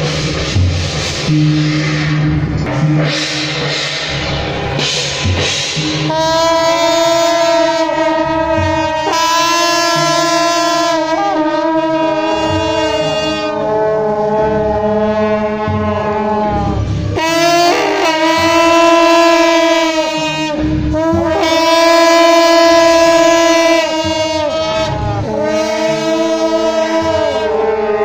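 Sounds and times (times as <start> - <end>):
procession horns blowing: 6.0 - 28.0.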